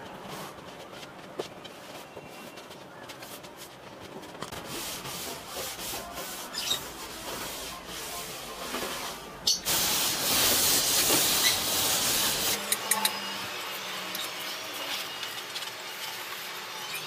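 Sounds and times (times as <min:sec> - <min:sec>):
cloth rag rubbing on wood: 0:00.0 - 0:12.6.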